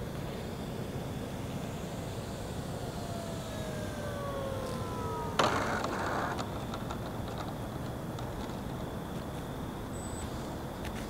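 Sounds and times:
model plane motor whining: 0:00.2 - 0:08.8
wheels rolling on pavement: 0:02.0 - 0:09.7.

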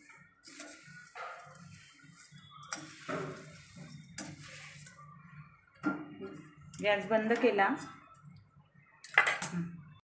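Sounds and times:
spatula scraping steel pan: 0:00.0 - 0:05.2.

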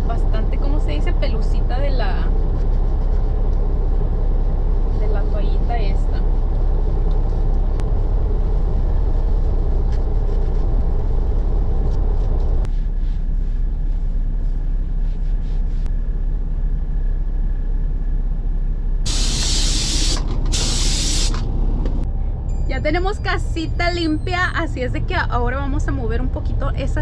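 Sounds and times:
truck idling rumble: 0:00.0 - 0:15.0, 0:16.0 - 0:27.0
aerosol spray hisses: 0:19.1 - 0:21.4.

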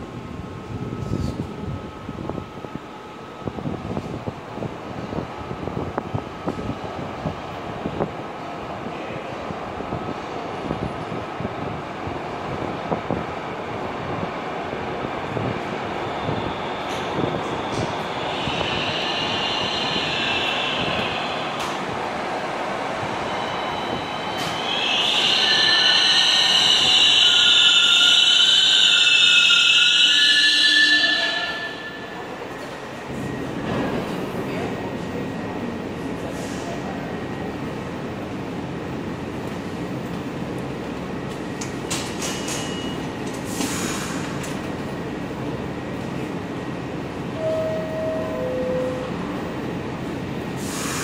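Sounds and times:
subway train low rumble: 0:00.0 - 0:51.0
train wheel squeal: 0:16.0 - 0:21.8, 0:23.2 - 0:32.7, 0:42.2 - 0:44.2
two held tones: 0:47.4 - 0:49.3.

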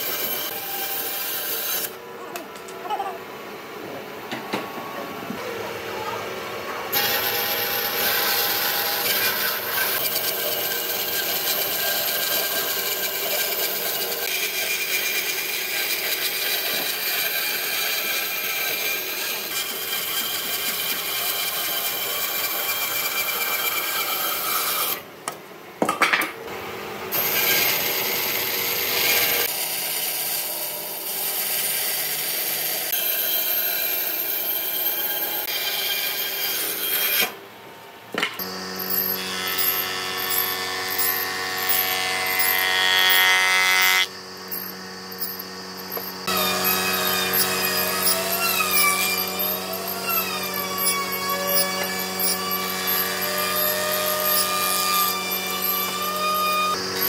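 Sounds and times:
power tool grinding wood: 0:06.9 - 0:25.0, 0:38.4 - 0:57.0.

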